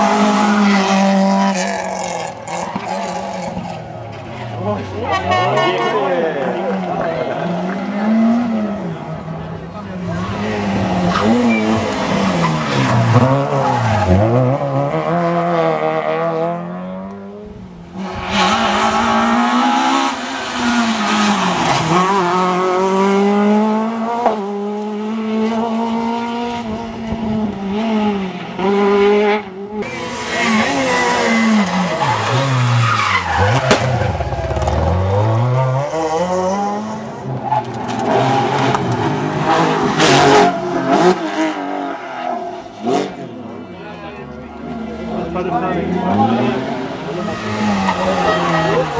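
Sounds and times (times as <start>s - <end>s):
rally car engines at full throttle: 0.0s - 48.9s
tyre squeal: 11.1s - 11.8s.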